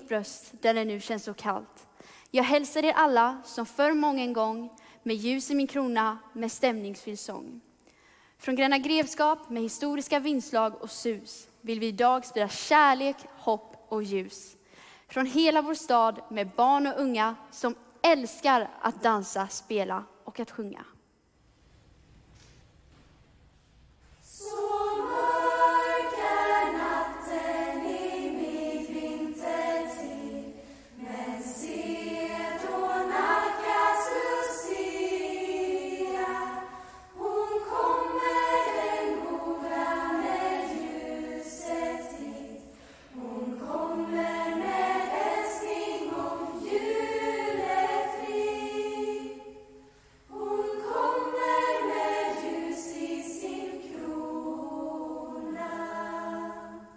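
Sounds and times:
women's choir singing: 24.2s - 56.9s.

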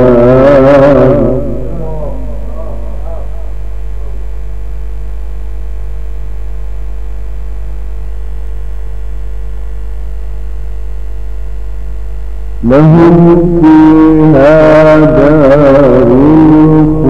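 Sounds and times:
man reciting melodically: 0.0s - 4.2s, 12.6s - 17.0s
electrical mains hum: 0.0s - 17.0s.

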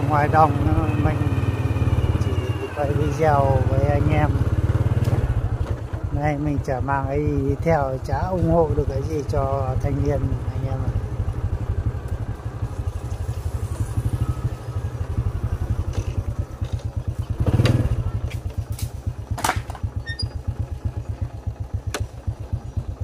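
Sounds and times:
small motorcycle engine running: 0.0s - 23.0s.

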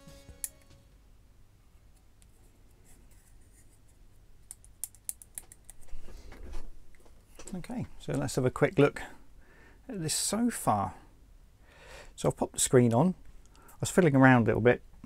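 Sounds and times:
background music: 0.0s - 1.1s.

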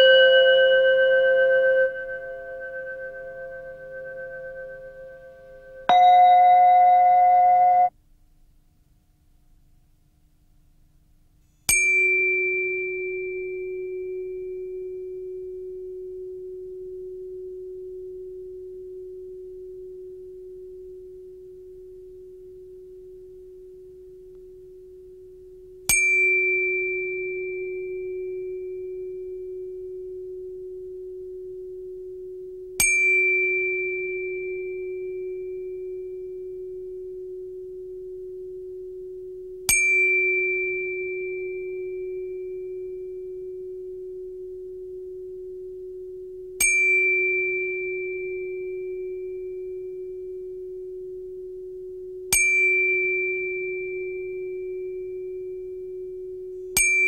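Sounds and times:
ringing metallic tone: 0.0s - 7.9s.

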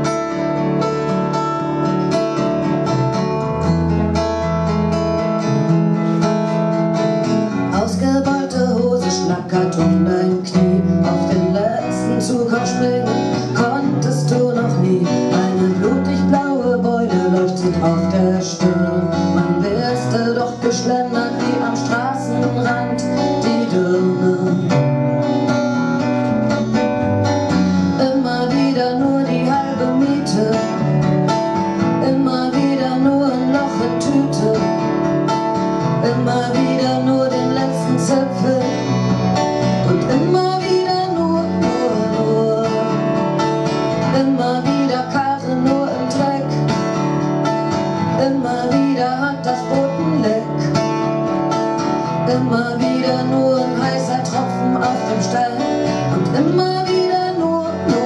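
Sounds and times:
strummed acoustic guitar: 0.0s - 58.0s.

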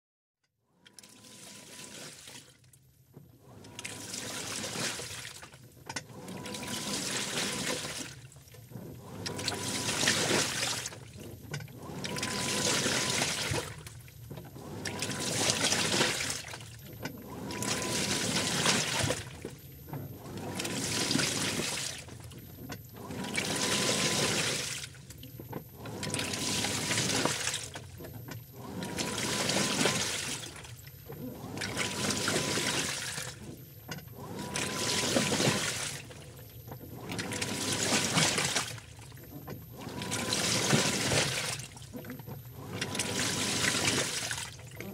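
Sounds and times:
water and clothes sloshing in drum: 0.9s - 44.9s.

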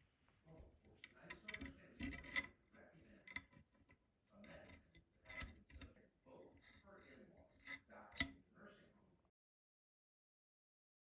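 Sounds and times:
metal-on-metal scraping: 0.5s - 8.5s.

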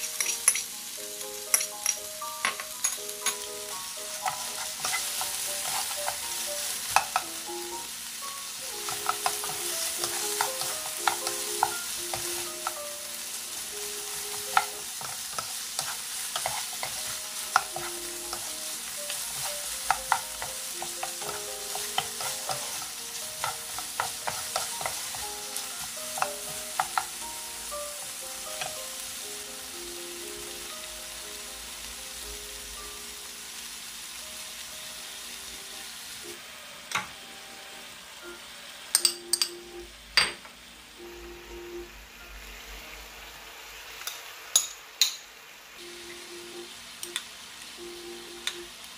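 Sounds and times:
spatula clicking and scraping pan: 0.0s - 0.7s, 4.1s - 7.3s, 8.8s - 12.8s, 14.2s - 27.2s, 28.5s - 28.8s
meat and onion sizzling: 0.0s - 48.9s.

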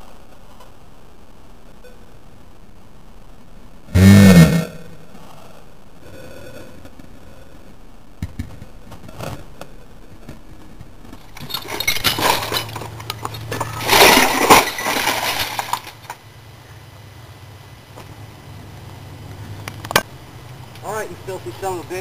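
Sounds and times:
broken glass and parts clattering: 11.2s - 16.2s.

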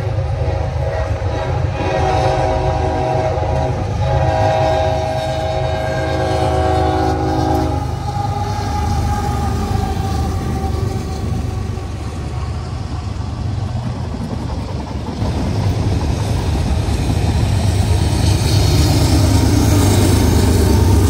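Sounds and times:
locomotive air horn: 0.0s - 12.2s
train low rumble: 0.0s - 21.0s.

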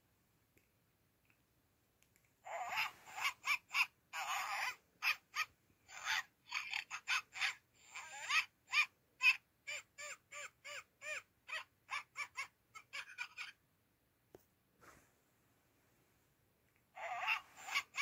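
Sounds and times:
kittens mewing: 2.5s - 13.6s, 17.0s - 18.0s.

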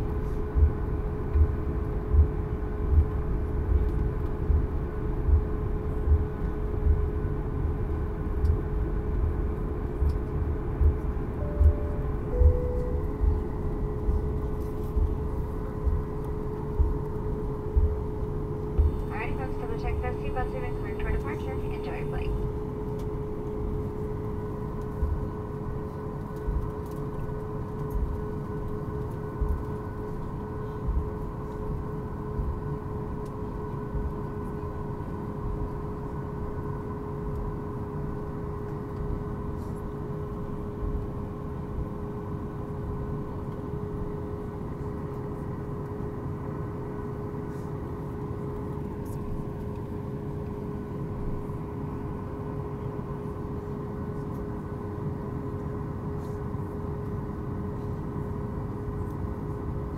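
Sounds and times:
low rumble: 0.0s - 28.7s
jet engines idling: 10.0s - 27.2s.

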